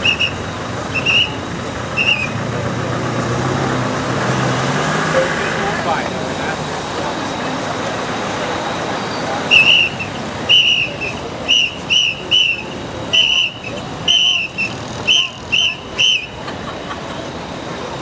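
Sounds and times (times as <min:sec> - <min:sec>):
sharp whistle blasts: 0:00.0 - 0:02.4, 0:09.5 - 0:16.4
crowd noise: 0:00.0 - 0:18.0.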